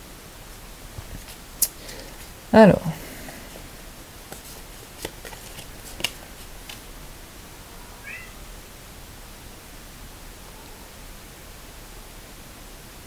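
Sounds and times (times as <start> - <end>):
playing cards clicking: 4.3 - 6.9.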